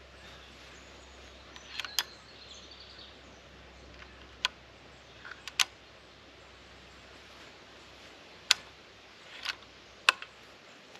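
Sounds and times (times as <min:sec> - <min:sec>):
bird chirping: 0:00.0 - 0:10.9
air rifle clicks: 0:01.5 - 0:02.2, 0:03.9 - 0:04.6, 0:05.2 - 0:05.8, 0:08.4 - 0:10.4.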